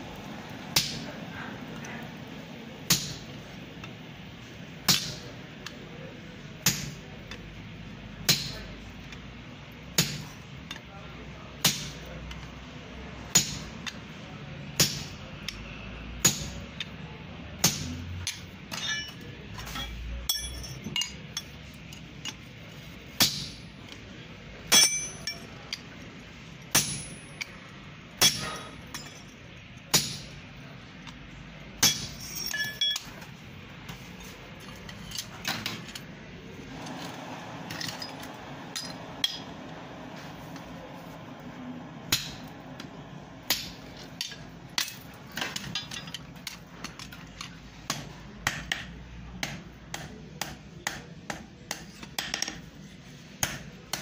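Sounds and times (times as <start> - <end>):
hammer striking hot iron: 0.7 - 1.2, 2.8 - 3.4, 4.8 - 5.8, 6.6 - 7.1, 8.2 - 8.7, 9.9 - 10.9, 11.6 - 12.1, 13.3 - 14.1, 14.7 - 15.6, 16.2 - 16.9, 17.6 - 21.6, 23.1 - 23.8, 24.7 - 25.9, 26.6 - 27.6, 28.2 - 29.3, 29.9 - 30.4, 31.8 - 33.3, 37.7 - 39.6, 42.1 - 42.6, 43.4 - 47.2, 47.9 - 52.6, 53.4 - 54.0
anvil ringing: 18.7 - 21.5, 24.7 - 25.4, 26.7 - 27.5, 28.2 - 29.3, 31.8 - 33.1, 42.1 - 42.5.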